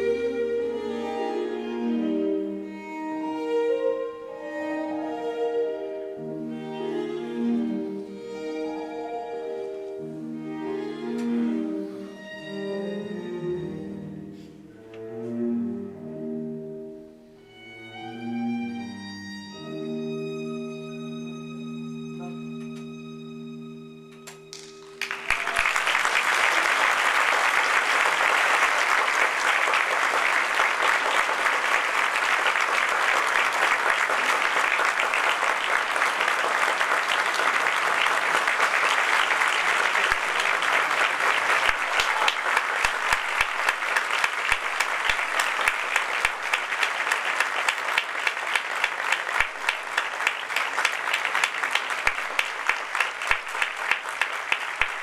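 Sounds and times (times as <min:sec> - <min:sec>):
audience applause: 0:24.6 - 0:55.0.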